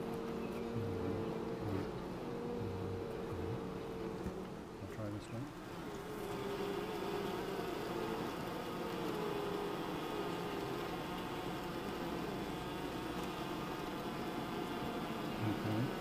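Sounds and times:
honey bees humming: 0:00.0 - 0:16.0.

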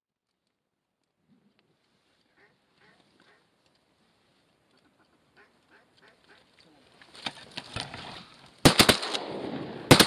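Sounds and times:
faint waterfowl calls: 0:02.1 - 0:03.7, 0:04.6 - 0:06.8
shotgun shots: 0:08.6 - 0:10.0.

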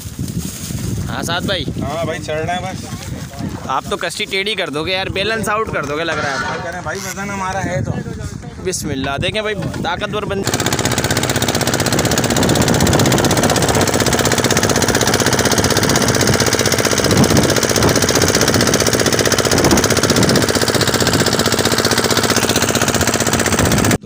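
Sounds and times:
boat inboard engine running: 0:10.4 - 0:24.0.

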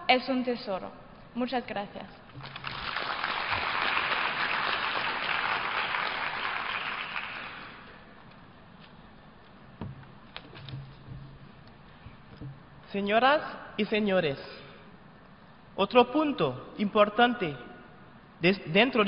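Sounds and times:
audience applauding: 0:02.4 - 0:08.0
faint knocks: 0:09.7 - 0:12.9.

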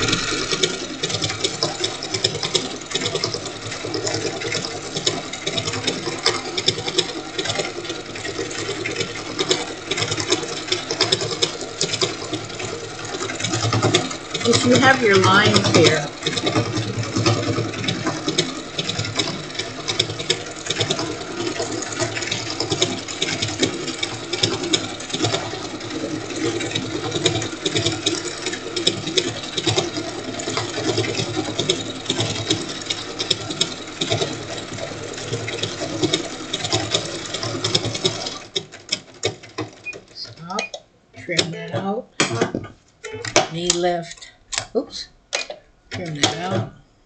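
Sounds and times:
electric sewing machine stitching: 0:00.0 - 0:42.6, 0:45.9 - 0:46.8.

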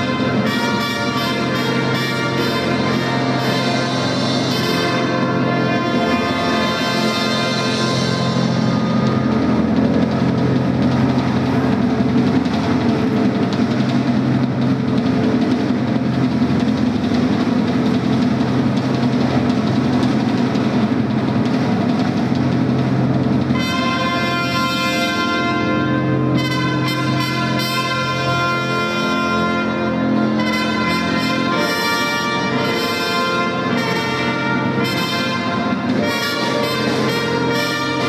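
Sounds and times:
trumpet fanfare: 0:00.0 - 0:15.2, 0:23.4 - 0:38.0
sustained low chord music: 0:00.0 - 0:38.0.

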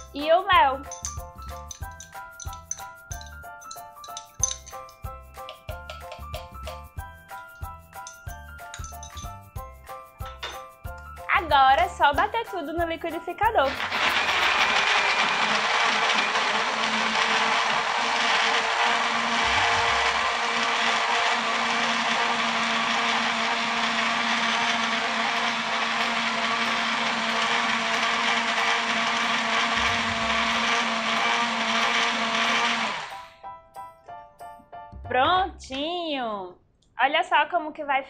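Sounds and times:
blender running: 0:13.6 - 0:33.3.

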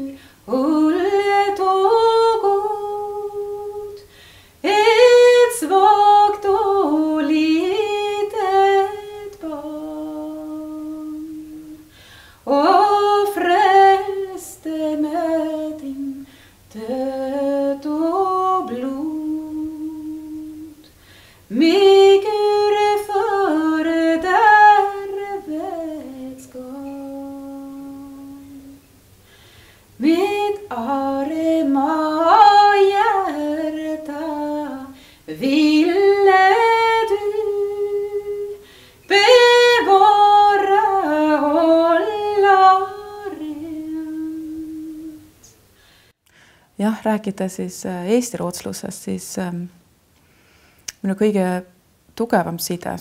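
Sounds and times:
woman singing unaccompanied: 0:00.0 - 0:28.9, 0:30.0 - 0:45.5
short breaths: 0:04.0 - 0:04.6, 0:11.9 - 0:12.4, 0:16.2 - 0:16.7, 0:20.9 - 0:21.5, 0:29.2 - 0:30.0, 0:35.0 - 0:35.3, 0:38.6 - 0:39.1, 0:45.6 - 0:46.8, 0:50.2 - 0:50.9.

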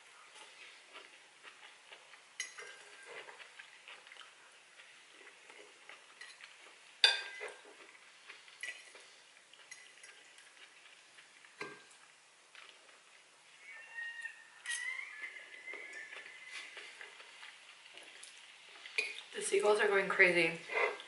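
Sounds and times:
fork clinking on ceramic bowl: 0:02.4 - 0:03.1, 0:06.2 - 0:07.6.

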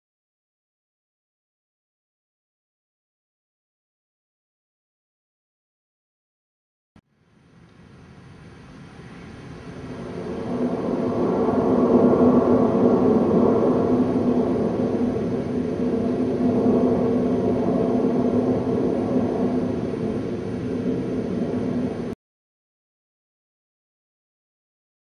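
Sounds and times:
ambient rumbling drone: 0:07.2 - 0:22.2.

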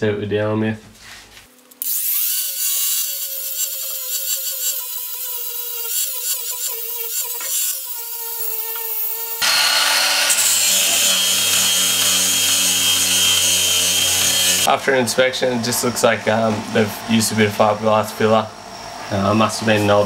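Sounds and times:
angle grinder grinding metal: 0:01.8 - 0:14.8.

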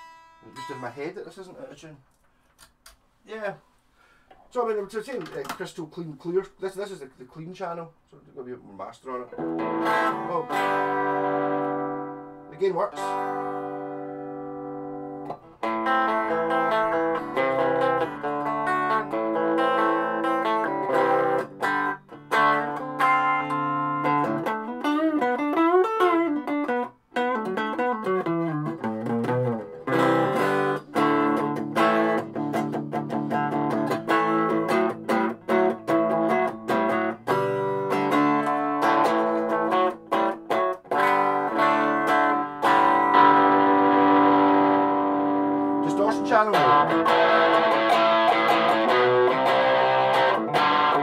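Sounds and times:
clean electric guitar: 0:09.2 - 0:51.0.

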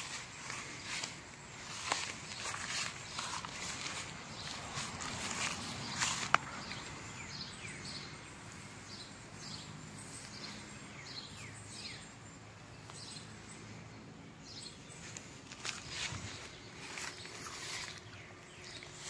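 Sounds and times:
faint background noise: 0:00.0 - 0:19.0
small bird chirping: 0:00.0 - 0:19.0.

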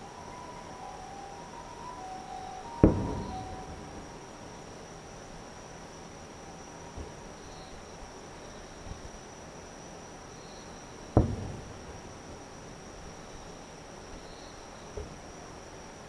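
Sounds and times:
insects trilling: 0:00.0 - 0:16.0
distant firework boom: 0:02.7 - 0:04.5, 0:11.2 - 0:12.2.

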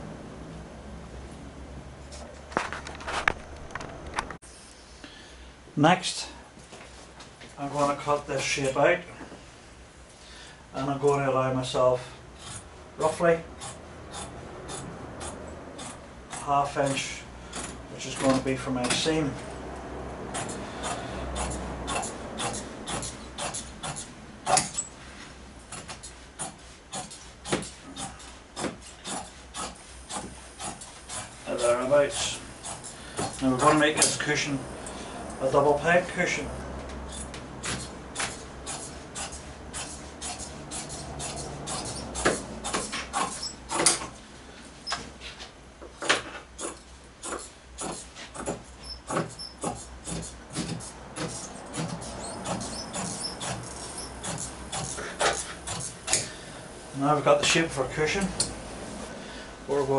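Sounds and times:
shears snipping fabric: 0:12.4 - 0:19.5, 0:20.3 - 0:24.9, 0:25.7 - 0:35.0, 0:37.1 - 0:44.2, 0:46.0 - 0:56.3
scissors snipping fabric: 0:20.3 - 0:24.9.

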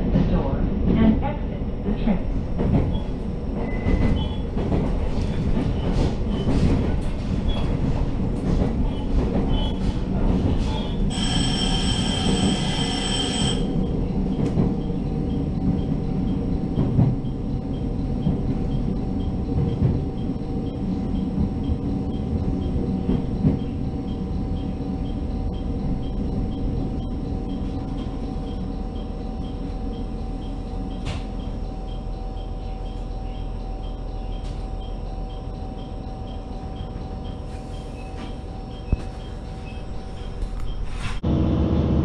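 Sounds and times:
railcar running rumble: 0:00.0 - 0:42.0
wheel squeal: 0:10.7 - 0:13.7.

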